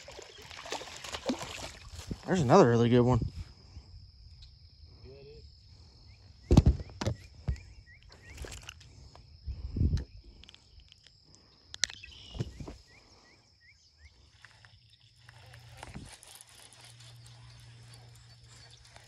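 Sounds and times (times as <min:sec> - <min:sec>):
footsteps through tall grass: 0:00.0 - 0:02.3, 0:15.2 - 0:19.0.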